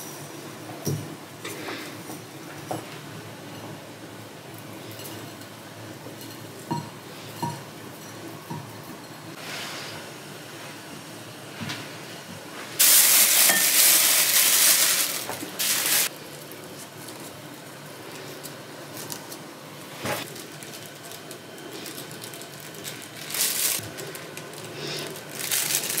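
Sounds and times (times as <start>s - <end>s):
crackling noise: 12.8s - 19.4s, 20.0s - 26.0s.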